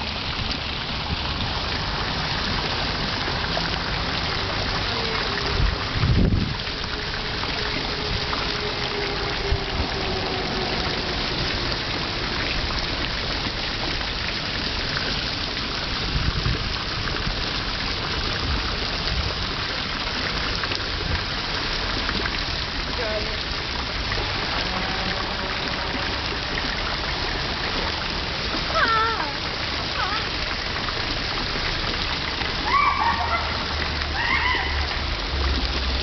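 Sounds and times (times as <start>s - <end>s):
fountain water splashing: 0.0s - 36.0s.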